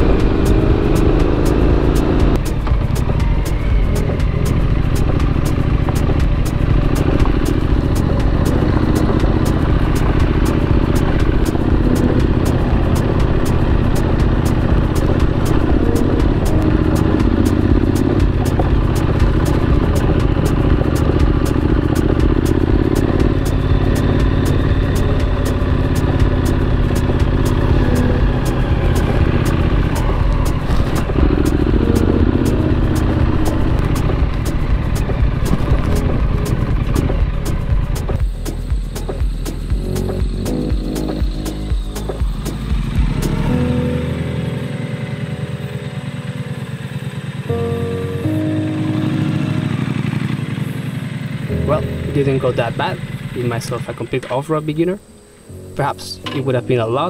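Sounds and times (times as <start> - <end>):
motorcycle engine running: 0.0 - 55.1.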